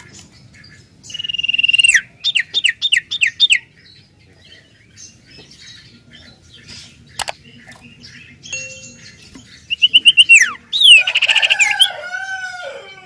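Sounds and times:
bird whistling song: 0:01.0 - 0:03.7, 0:08.5 - 0:11.8.

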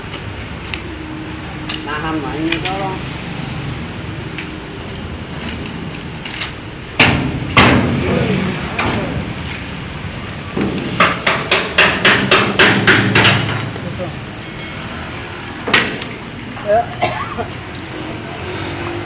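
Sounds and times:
wooden planks knocking on metal: 0:10.6 - 0:13.8.

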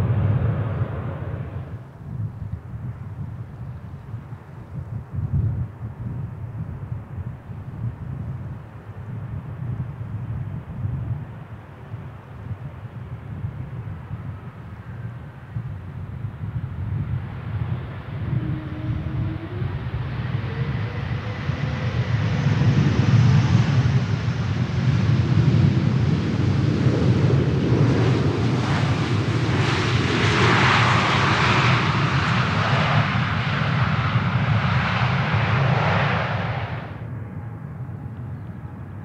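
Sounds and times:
jet engines rumbling: 0:00.0 - 0:02.1, 0:13.9 - 0:39.0.

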